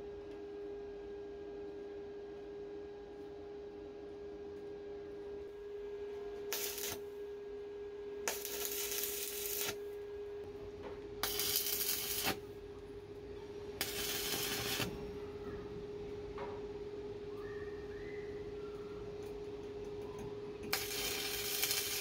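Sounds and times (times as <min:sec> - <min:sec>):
crackling welding arc: 0:06.5 - 0:07.0, 0:08.3 - 0:09.8, 0:11.2 - 0:12.5, 0:13.8 - 0:15.0, 0:20.6 - 0:22.0.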